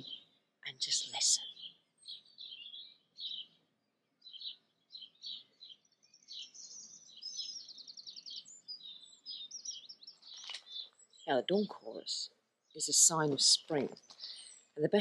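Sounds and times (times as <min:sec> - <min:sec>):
bird trill: 0:00.0 - 0:03.6, 0:04.2 - 0:12.1
songbirds singing: 0:00.0 - 0:15.0.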